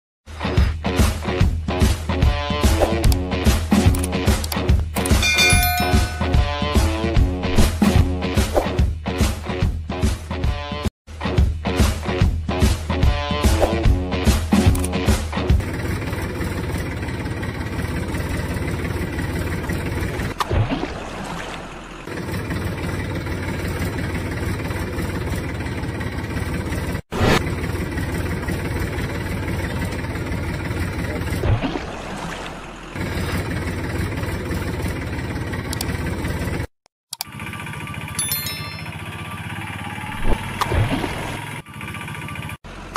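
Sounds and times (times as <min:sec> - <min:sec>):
tractor engine running: 0:14.6 - 0:20.5, 0:21.1 - 0:42.9.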